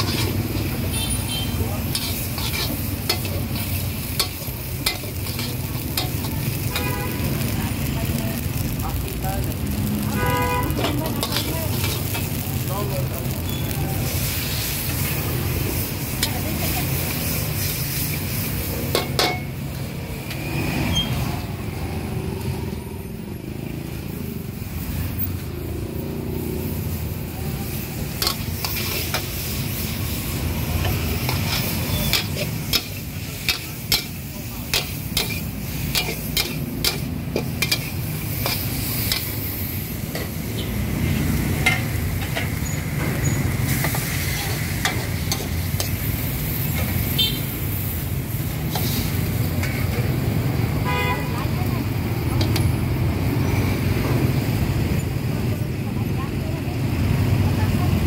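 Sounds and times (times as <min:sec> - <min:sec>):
metal ladle scraping a wok: 0:00.0 - 0:07.5, 0:10.1 - 0:12.4, 0:27.6 - 0:50.0
food sizzling in a wok: 0:00.0 - 0:58.0.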